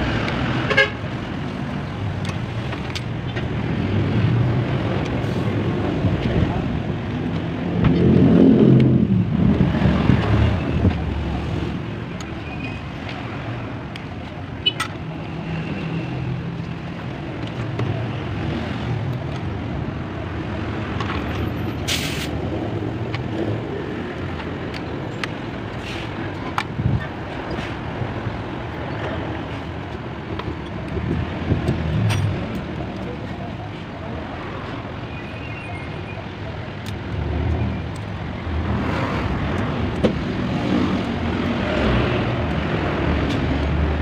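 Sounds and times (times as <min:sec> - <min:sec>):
short sharp hiss: 0:21.9 - 0:22.3.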